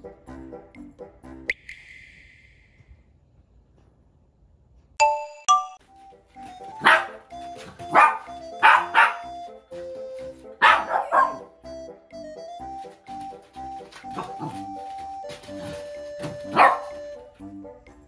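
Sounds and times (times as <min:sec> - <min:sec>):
light background music: 0:05.8 - 0:18.0
dog barking: 0:06.8 - 0:09.4, 0:10.6 - 0:11.5, 0:14.1 - 0:14.7, 0:15.6 - 0:17.2.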